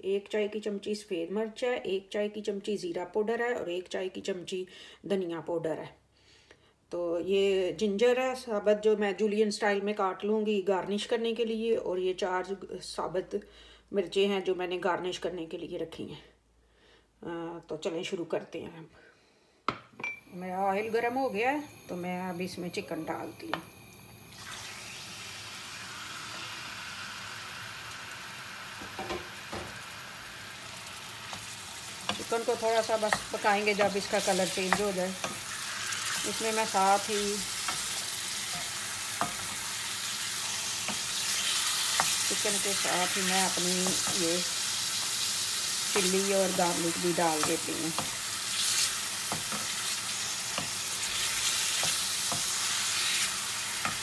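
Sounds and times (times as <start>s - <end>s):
chicken sizzling in hot oil: 20.4s - 54.0s.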